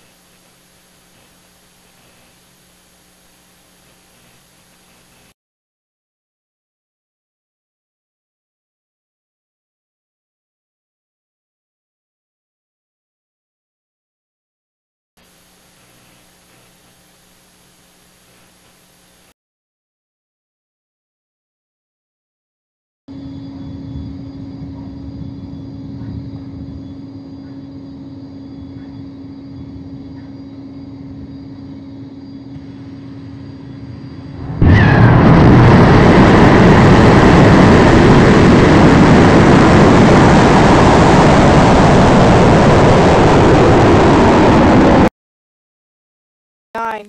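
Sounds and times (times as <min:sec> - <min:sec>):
rocket engine exhaust roar: 0:23.1 - 0:45.1.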